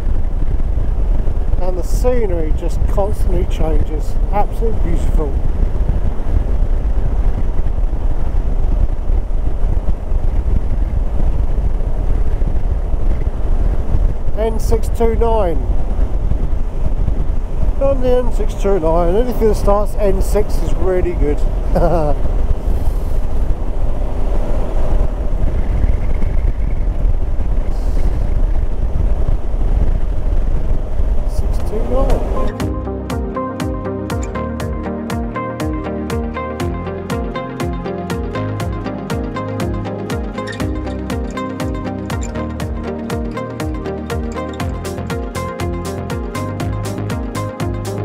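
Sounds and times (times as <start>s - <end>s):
motorcycle engine and road noise: 0.0s - 48.0s
wind buffeting microphone: 0.0s - 48.0s
motorcycle engine running: 24.7s - 48.0s.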